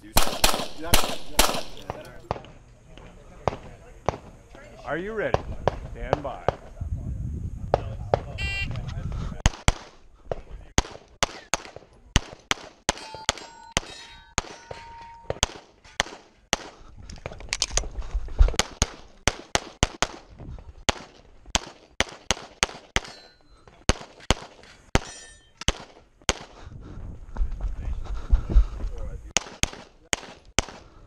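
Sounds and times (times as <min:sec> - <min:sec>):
rapid pistol fire: 0:00.2 - 0:02.0, 0:09.4 - 0:10.0, 0:10.8 - 0:13.0, 0:18.6 - 0:20.3, 0:20.9 - 0:23.1, 0:29.4 - 0:31.0
steel plate ringing: 0:12.9 - 0:15.4, 0:25.0 - 0:25.6.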